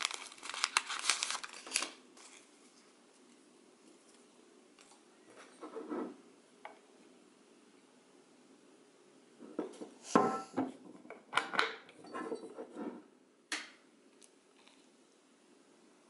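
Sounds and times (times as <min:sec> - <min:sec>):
kettle and mug clunking: 0:09.5 - 0:13.0.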